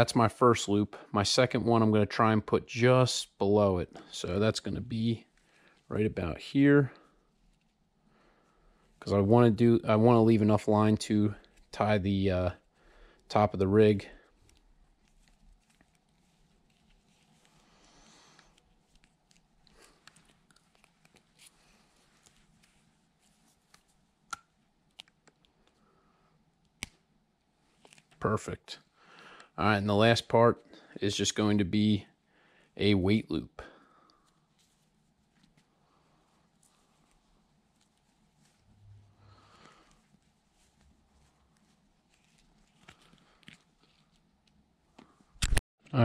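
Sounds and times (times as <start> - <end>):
faint clicks and rustles of fishing line: 14.3 - 25.8.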